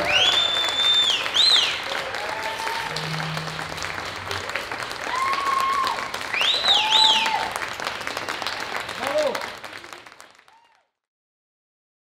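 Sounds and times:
audience applauding: 0.0s - 10.9s
high rising-and-falling cries: 2.6s - 6.2s.

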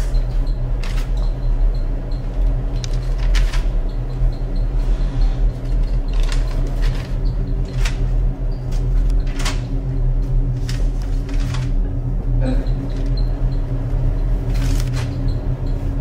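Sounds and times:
steady low hum: 0.0s - 16.0s
paper pages flipping: 14.5s - 15.1s.

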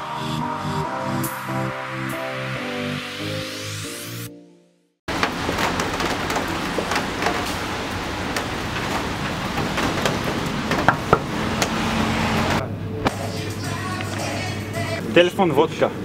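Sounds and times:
rain on hard wet ground: 5.1s - 12.6s.

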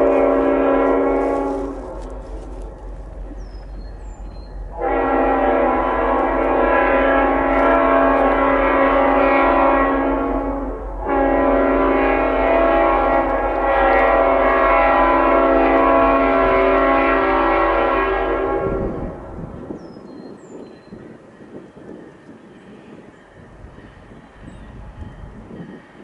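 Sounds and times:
locomotive air horn: 0.0s - 2.7s, 4.7s - 19.5s
train rumble: 0.0s - 26.0s.

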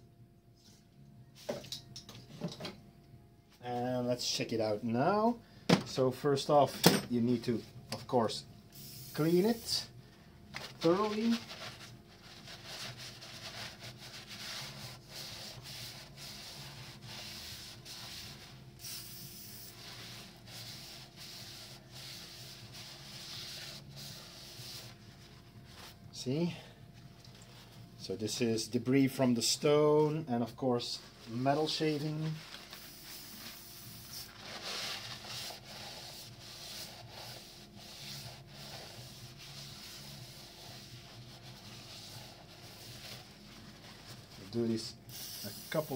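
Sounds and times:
paper towel scrubbing metal: 10.6s - 18.6s, 34.3s - 44.8s.

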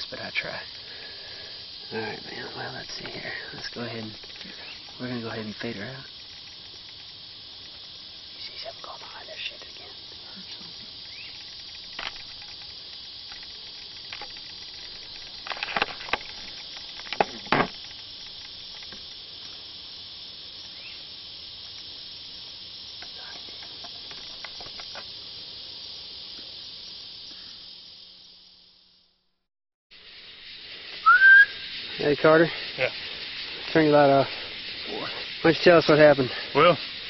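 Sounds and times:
insects chorus: 0.0s - 37.0s
sharp knocks and clicks: 13.3s - 19.1s.

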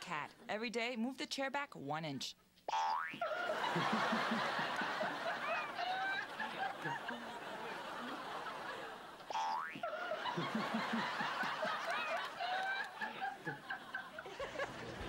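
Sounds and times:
cartoon boing sound effect: 2.7s - 3.2s
audience laughing: 3.2s - 15.0s.

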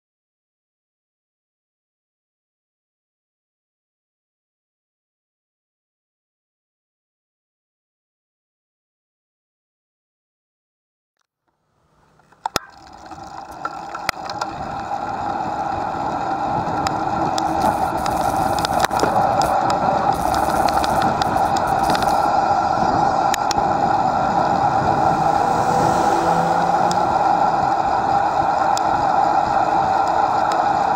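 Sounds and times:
road and wind noise: 11.6s - 30.9s.

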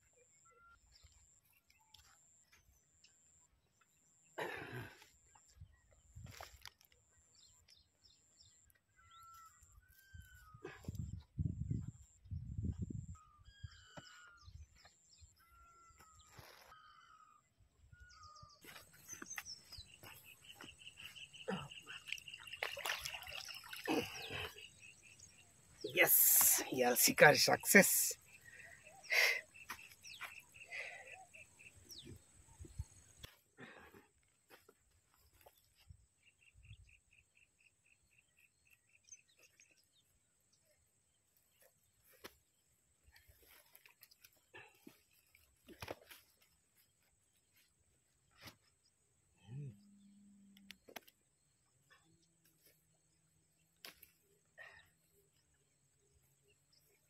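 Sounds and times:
short outdoor chirps: 18.0s - 33.4s.

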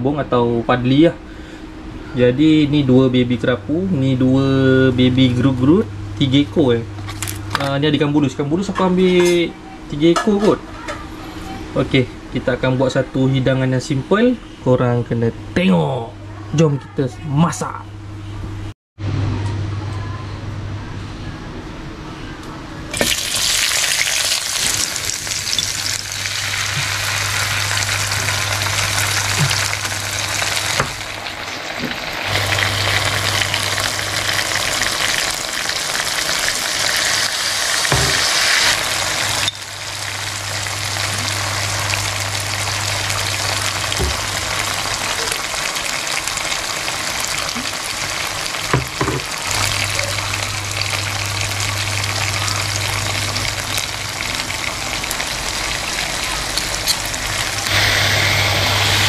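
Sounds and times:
food sizzling in hot oil: 22.9s - 59.0s.

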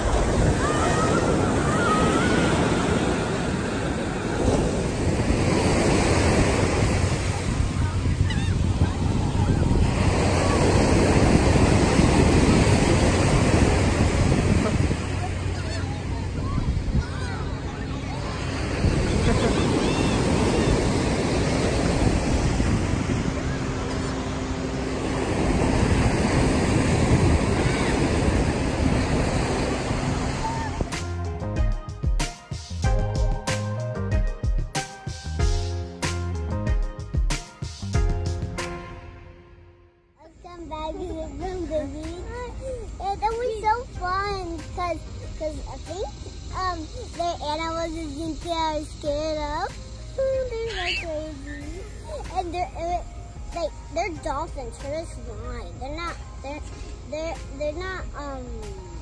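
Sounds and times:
ocean surf breaking: 0.0s - 31.2s
wind on microphone: 0.0s - 31.2s.

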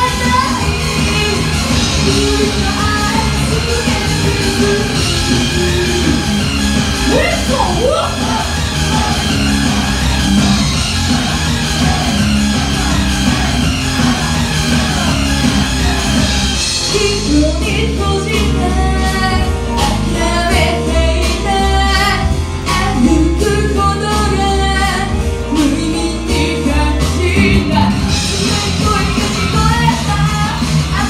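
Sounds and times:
woman singing into a microphone: 0.0s - 6.3s, 16.9s - 31.0s
heavy rock music: 0.0s - 31.0s.

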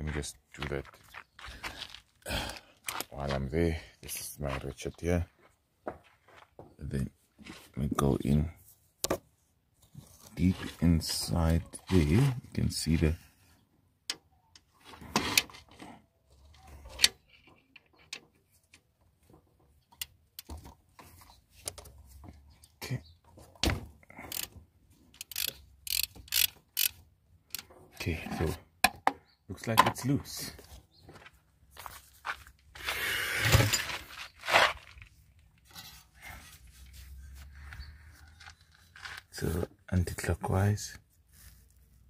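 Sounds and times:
ratchet clicking on a bolt: 24.3s - 24.5s, 25.2s - 27.7s
hand tools scraping metal: 35.6s - 37.6s.

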